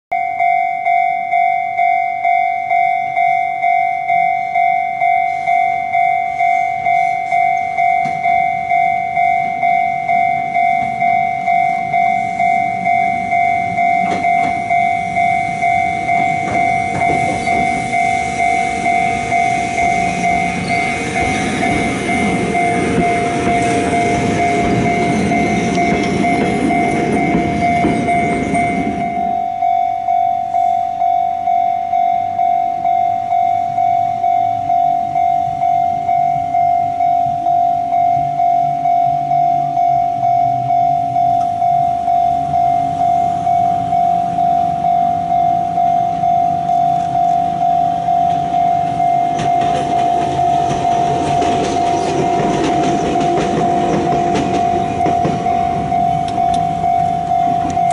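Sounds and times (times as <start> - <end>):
level-crossing warning bell: 0.1 - 57.9
train wheels rumbling on rails: 5.0 - 29.5, 42.4 - 57.9.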